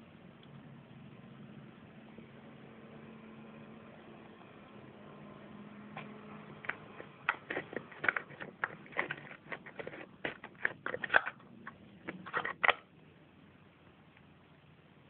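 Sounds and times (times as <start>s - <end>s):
small box clicks and scrapes: 6.0s - 12.9s.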